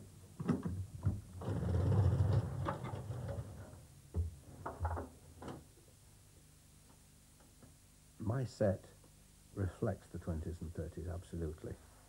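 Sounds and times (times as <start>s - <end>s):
metal ladder scraping: 1.4s - 3.7s.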